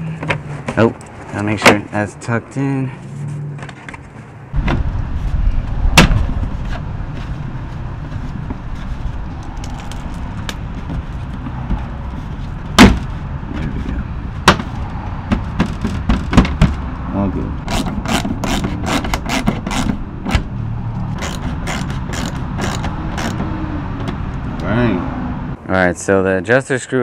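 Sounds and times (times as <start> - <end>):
steady low rumble: 4.5 - 25.6.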